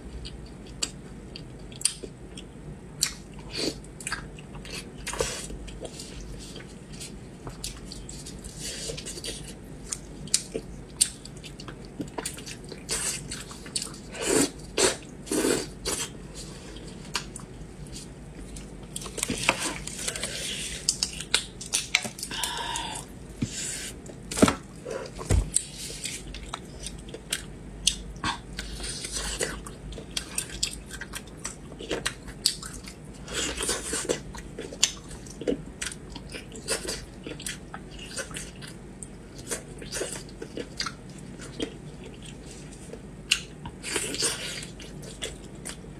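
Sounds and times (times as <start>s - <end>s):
chewing meat: 0.0s - 23.4s, 24.0s - 45.9s.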